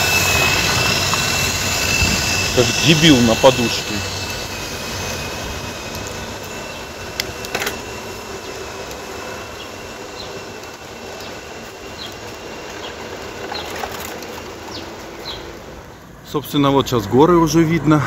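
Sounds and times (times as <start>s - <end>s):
wind noise: 0.0s - 10.6s
bicycle rolling rumble: 0.0s - 18.0s
bicycle clicks and rattles: 5.0s - 15.7s.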